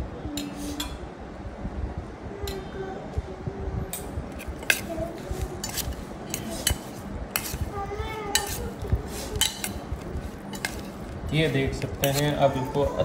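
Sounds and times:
spoon scraping wet lemon: 4.3 - 7.7, 8.3 - 12.7.

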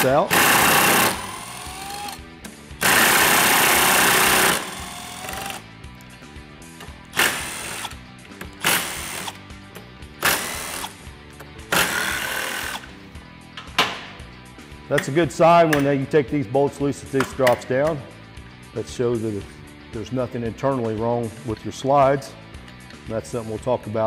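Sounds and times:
background music: 0.0 - 24.0
cordless power driver spinning: 0.3 - 5.6.

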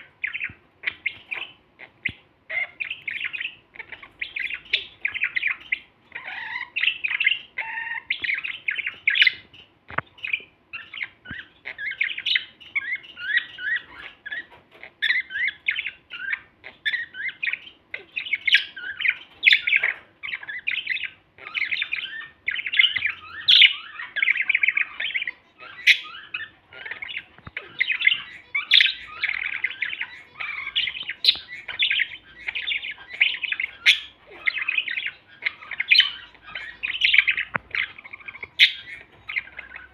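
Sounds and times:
budgerigars warbling: 0.0 - 39.9.

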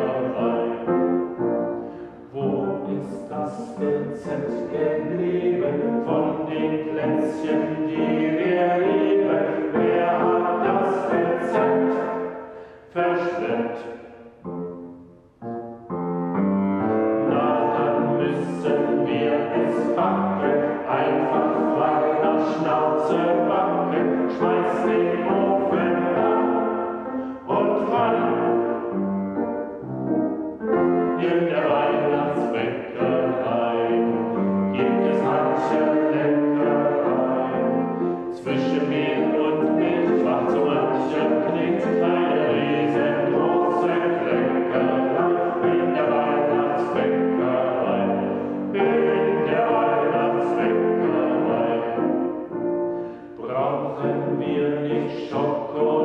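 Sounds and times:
group of people singing: 0.0 - 1.2, 2.3 - 13.9, 17.0 - 29.0, 30.6 - 56.0
grand piano: 0.0 - 56.0.

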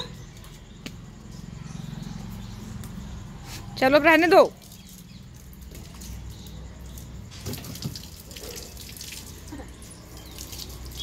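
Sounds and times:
hose water splashing on concrete: 2.8 - 11.0.

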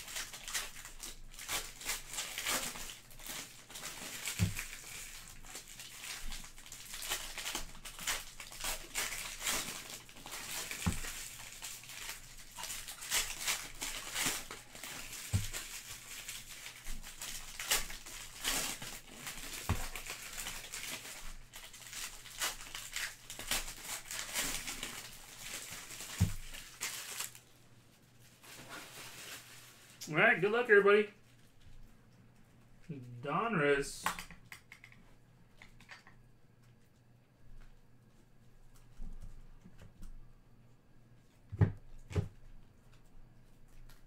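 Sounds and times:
foil wrappers crinkling: 0.0 - 31.8.

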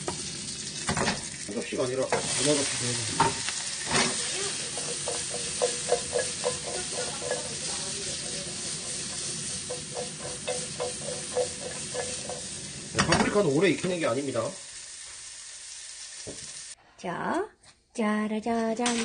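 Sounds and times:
bell pepper sizzling in a frying pan: 0.0 - 16.8
frying pan knocking on stove: 4.0 - 14.0.

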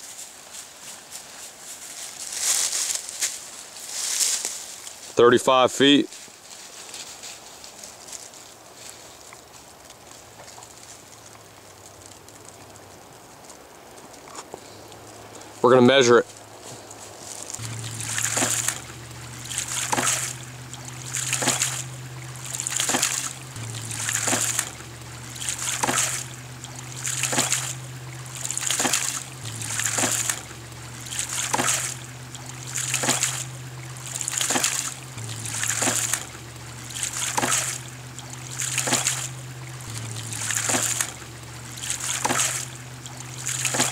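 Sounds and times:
low hum: 16.3 - 43.9
water gushing from valve: 17.6 - 43.9.

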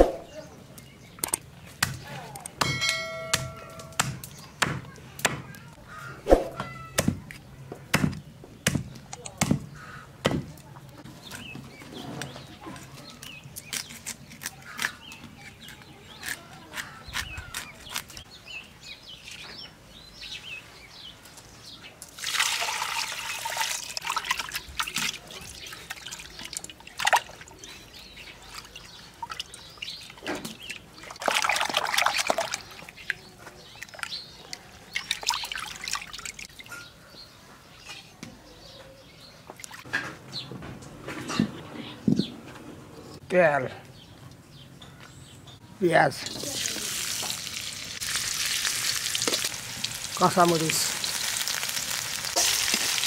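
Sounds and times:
water sloshing and pouring: 22.1 - 27.7, 28.4 - 34.2, 34.9 - 36.7
water splashing: 22.2 - 27.7, 28.4 - 34.2, 34.9 - 36.7.

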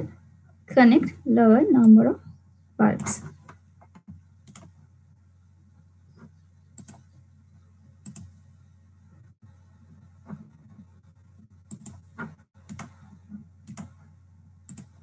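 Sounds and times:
faint low hum: 0.0 - 15.0
computer mouse clicks: 3.0 - 4.8, 6.1 - 7.2, 8.0 - 8.4, 11.6 - 14.0, 14.6 - 15.0.

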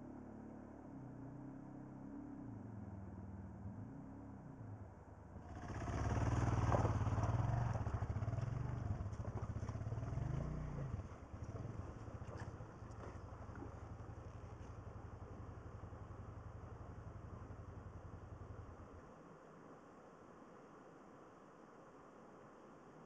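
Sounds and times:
motorcycle engine revving: 5.5 - 18.9.

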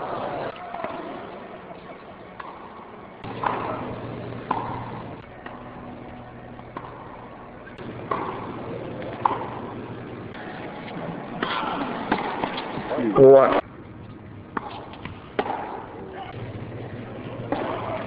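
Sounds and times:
steady low hum: 2.8 - 13.0, 13.6 - 18.0
tennis ball hit with racket: 3.2 - 5.6, 6.7 - 9.7, 11.4 - 12.9, 14.5 - 15.9, 17.5 - 18.0.

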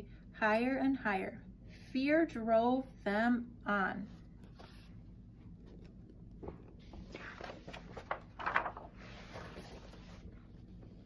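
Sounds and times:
paper page rustling: 4.4 - 11.0.

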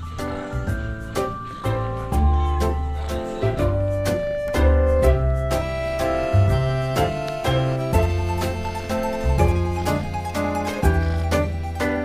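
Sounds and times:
background music with beat: 0.0 - 12.0.

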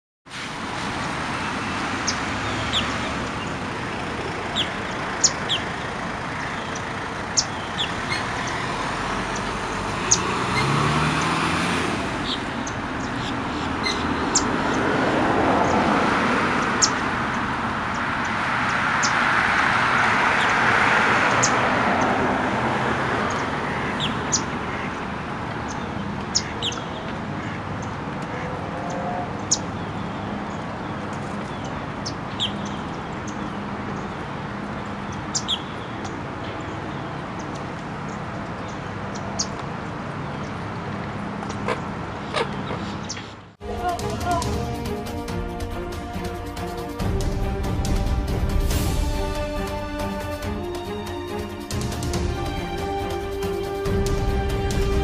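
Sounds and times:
low rumble of distant traffic: 0.3 - 55.0
high bird chirps: 4.5 - 11.4, 12.2 - 14.8.

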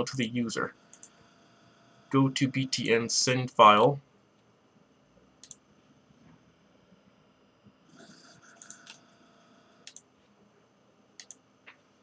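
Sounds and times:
faint clicks: 0.9 - 1.2, 5.4 - 5.6, 9.8 - 10.1, 11.2 - 11.8.

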